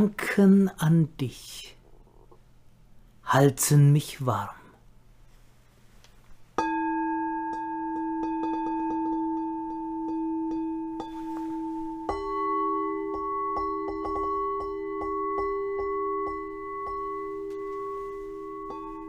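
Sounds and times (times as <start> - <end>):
singing bowls ringing: 6.6 - 19.0.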